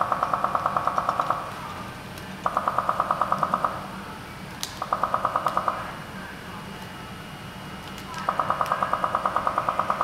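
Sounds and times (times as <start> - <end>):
rapid electronic beeps: 2.4 - 3.8.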